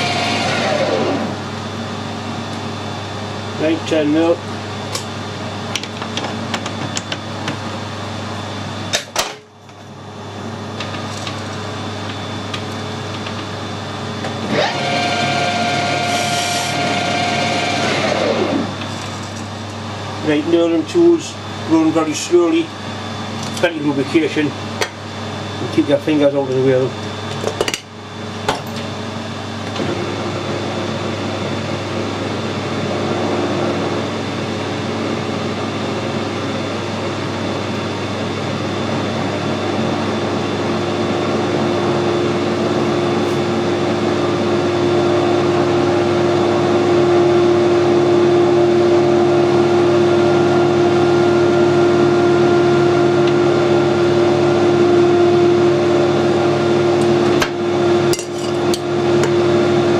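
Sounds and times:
metal lathe humming: 0.0s - 1.9s, 10.8s - 20.8s.

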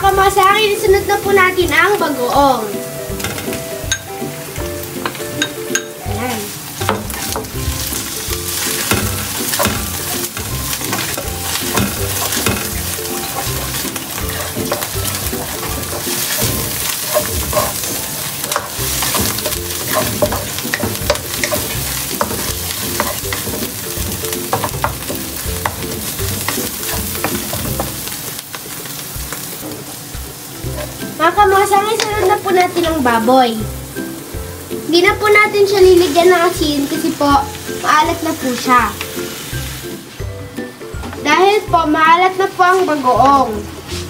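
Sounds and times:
shrimp paste sizzling in oil: 0.0s - 44.0s
wooden spatula scraping pan: 6.9s - 28.2s.

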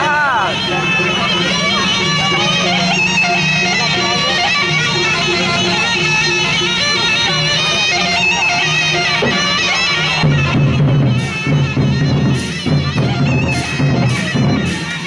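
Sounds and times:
big drums steady beat: 0.0s - 15.0s
cymbals: 0.0s - 15.0s
reed pipe nasal melody: 0.0s - 15.0s.

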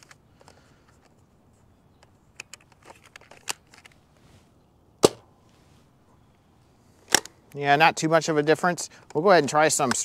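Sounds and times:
small plastic clicks: 2.0s - 4.0s.

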